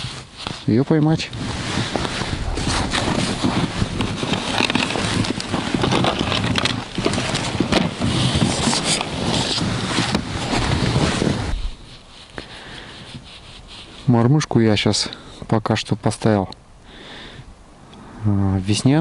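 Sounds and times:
plastic box being handled and opened: 1.3s - 11.8s
clothing rubbing: 1.4s - 14.2s.

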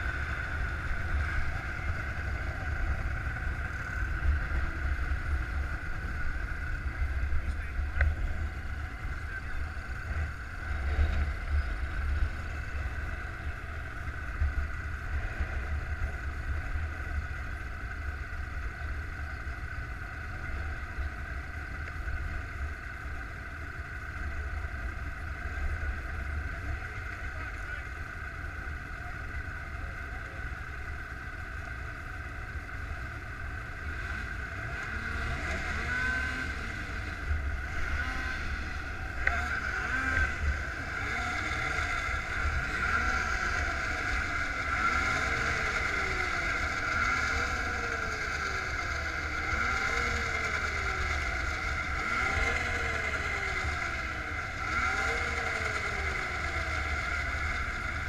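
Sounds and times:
snowmobile engines idling: 0.0s - 58.0s
snowmobile engine revving: 33.7s - 58.0s.

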